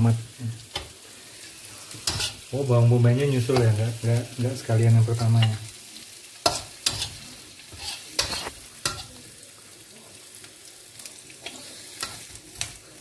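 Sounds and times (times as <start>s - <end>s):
faint sizzle: 0.0s - 13.0s
metal spatula scraping a wok: 0.8s - 2.5s, 6.4s - 9.2s.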